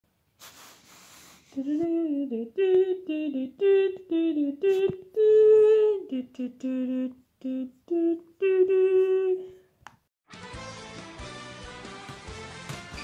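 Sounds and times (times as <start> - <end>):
man humming a tune: 1.6 - 9.6.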